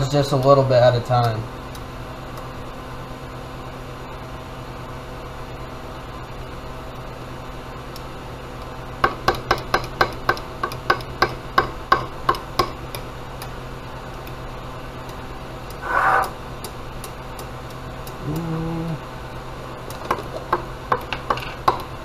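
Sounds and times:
short rasp: 0:15.8 - 0:16.4.

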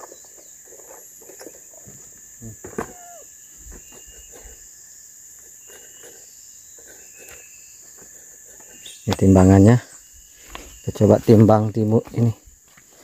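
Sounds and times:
insect chorus: 0:00.0 - 0:13.0
brief squeak: 0:02.7 - 0:04.6.

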